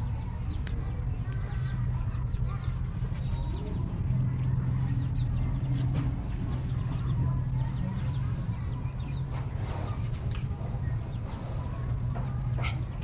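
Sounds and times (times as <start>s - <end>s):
low hum: 0.0s - 13.0s
bird clucking: 11.0s - 13.0s.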